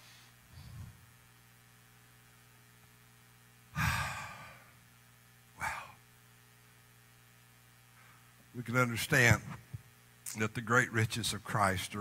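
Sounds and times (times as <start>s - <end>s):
faint steady hum: 0.0s - 12.0s
man sighing: 3.8s - 4.7s, 5.6s - 6.0s.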